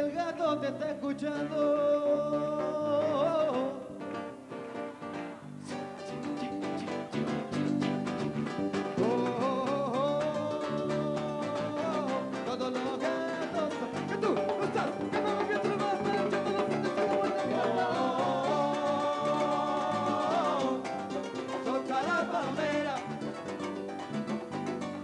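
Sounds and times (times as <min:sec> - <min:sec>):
man singing lead: 0:00.0 - 0:04.4, 0:08.8 - 0:23.7
live rumba band playing: 0:00.8 - 0:25.0.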